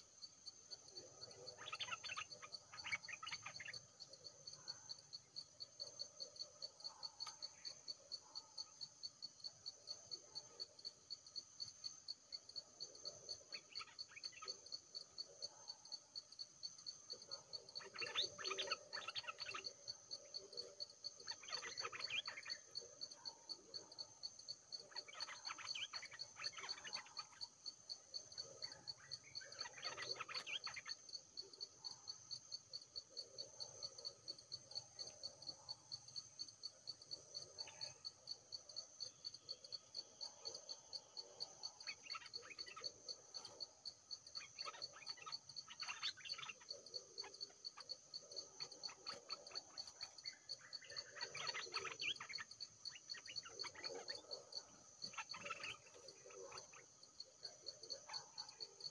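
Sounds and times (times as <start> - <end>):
insects or frogs calling: 0.0 - 58.9
bird calls: 0.8 - 4.8, 17.2 - 23.9, 44.3 - 58.9.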